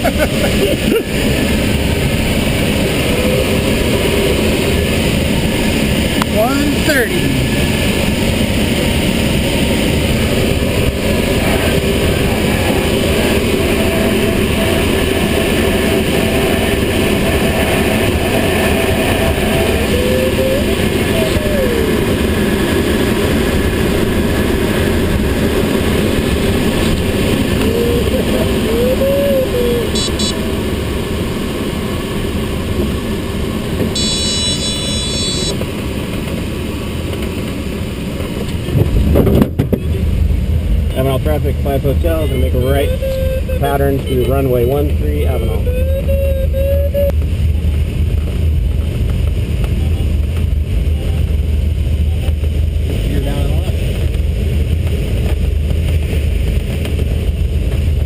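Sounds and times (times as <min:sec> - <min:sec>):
air rushing past glider canopy: 0:00.0 - 0:58.0
steady electronic tone: 0:27.4 - 0:30.6, 0:33.9 - 0:35.6, 0:42.1 - 0:47.2
thin rising tone: 0:42.4 - 0:47.2.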